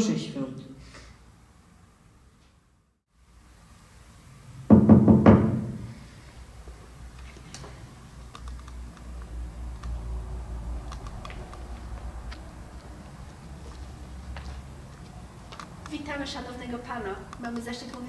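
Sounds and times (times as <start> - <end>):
faint clicks and shuffling: 7.1 - 10.0, 10.8 - 18.0.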